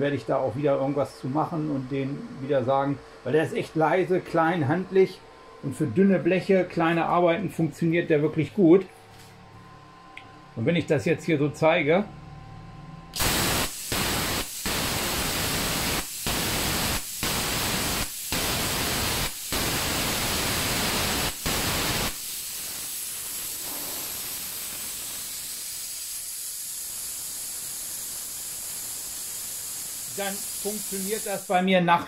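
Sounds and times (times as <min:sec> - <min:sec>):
air hissing: 0:13.2 - 0:31.7
plasma cutter arc hissing: 0:13.2 - 0:31.7.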